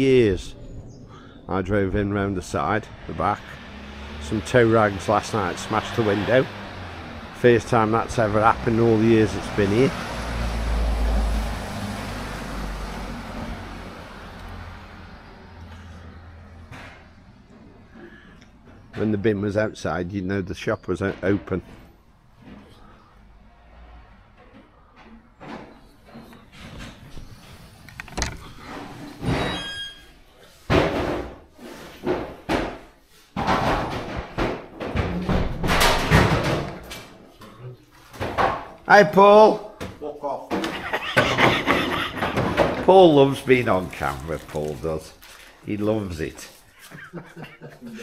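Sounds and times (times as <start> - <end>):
vehicle passing by: 0.1 - 19.0, 22.6 - 25.2, 40.8 - 46.5
sharp knocks and bangs: 30.7 - 37.2, 38.1 - 38.8, 39.8 - 43.2.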